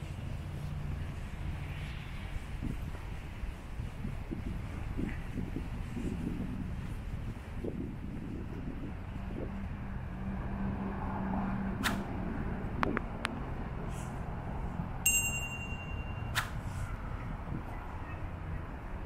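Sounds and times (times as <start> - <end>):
metallic ping: 15.1 - 16.5.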